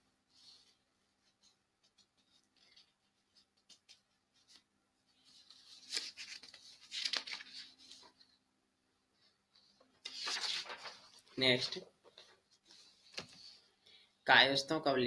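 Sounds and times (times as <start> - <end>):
rustling and scraping handling noise: 9.1 - 13.7.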